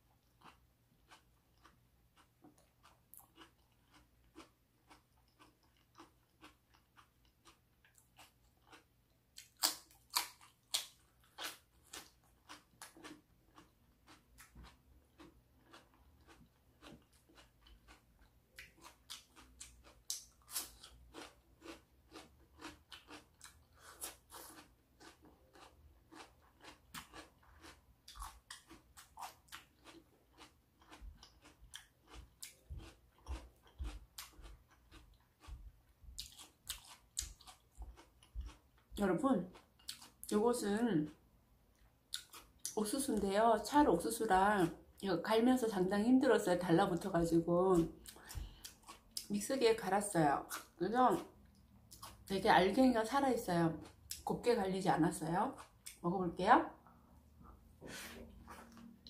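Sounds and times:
wet crunchy chewing: 0.2 - 40.4, 41.8 - 42.8.

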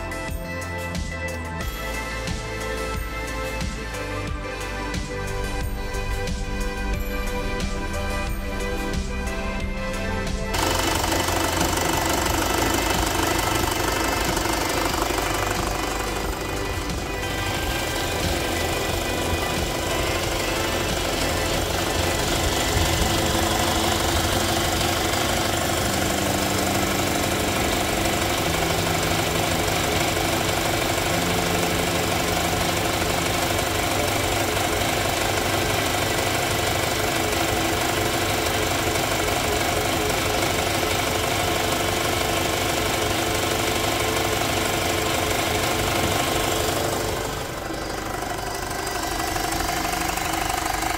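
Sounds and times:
car engine idling with clatter: 0.0 - 50.9.

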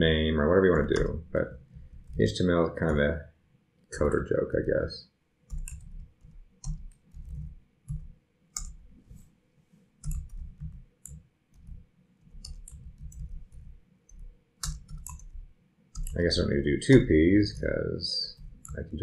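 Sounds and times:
typing on keyboard: 0.7 - 3.0, 5.5 - 9.2, 10.0 - 19.0.

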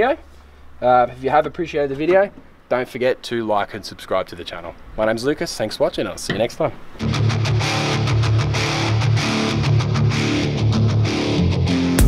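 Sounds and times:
guitar rock music: 7.0 - 12.0.

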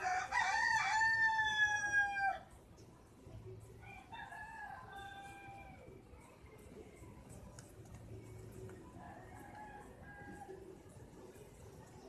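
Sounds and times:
rooster crowing: 0.0 - 2.4.

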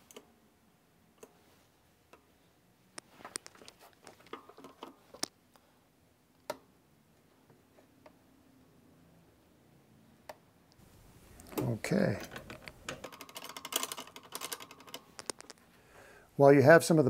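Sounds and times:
metal mechanism clicks and knocks: 11.4 - 15.5.

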